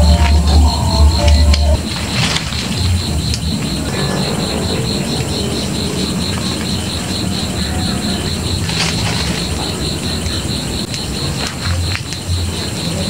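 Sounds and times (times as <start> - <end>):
constant low rumble: 0.0 - 5.7
insects chirping: 0.0 - 13.0.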